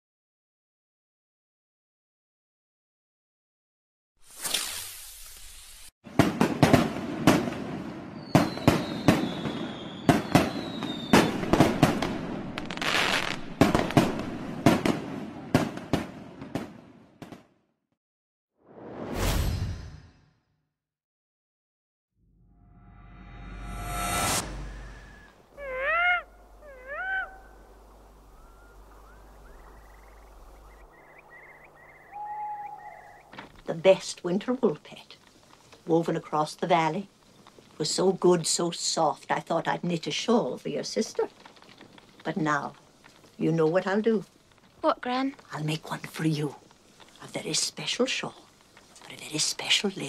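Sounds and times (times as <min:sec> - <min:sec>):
fireworks crackling: 0:04.2 - 0:17.4, 0:33.3 - 0:39.0, 0:39.8 - 0:50.0
fireworks bangs: 0:06.1 - 0:17.5
firework whistle: 0:08.2 - 0:11.4, 0:23.4 - 0:25.4
owl cry: 0:24.6 - 0:27.7, 0:28.3 - 0:33.4.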